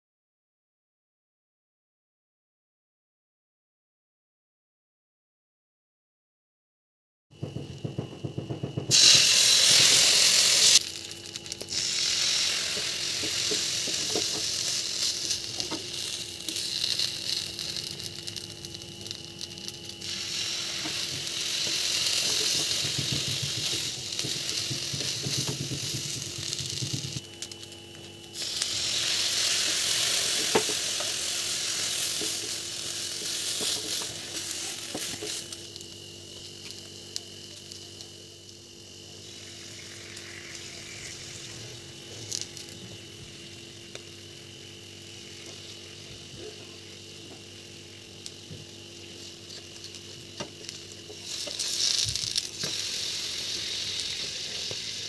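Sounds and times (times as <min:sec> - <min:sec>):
bread frying with steady sizzle: 0:07.4 - 0:55.0
milk hissing in hot pan: 0:07.9 - 0:55.0.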